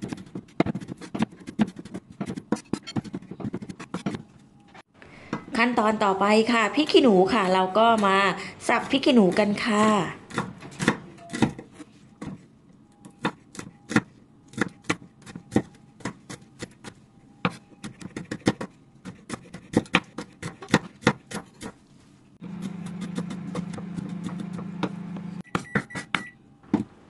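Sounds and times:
knife chopping on cutting board: 13.2 - 21.8, 22.4 - 25.0.

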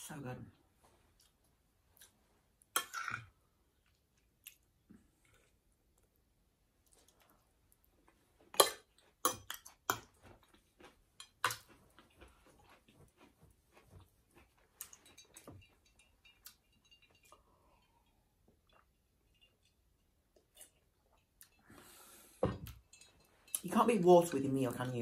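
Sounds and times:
fork clinking on ceramic plate: 14.8 - 17.4.

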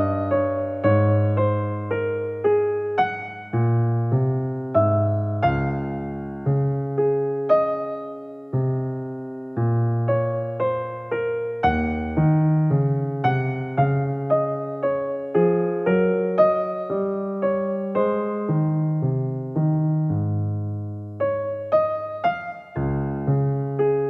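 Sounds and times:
piano chords and notes: 0.0 - 24.0.

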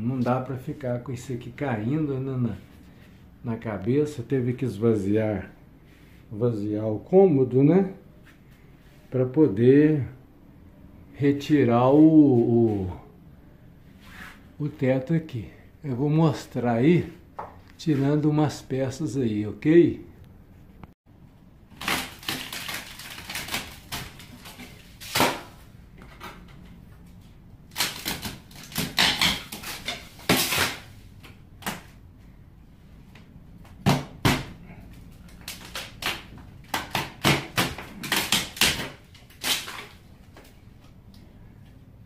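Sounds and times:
wood cracking and rattling: 21.7 - 26.6.

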